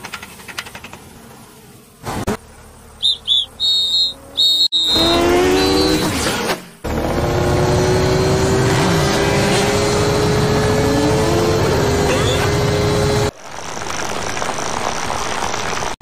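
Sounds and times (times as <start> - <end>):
engine-like insect buzz: 0.1 - 13.2
high cartoon chirps: 3.0 - 6.0.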